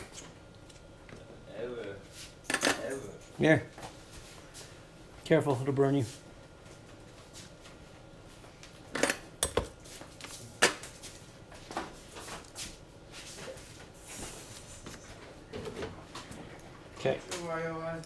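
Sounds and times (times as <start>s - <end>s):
tools clinking on a workbench: 2.5s - 3.4s.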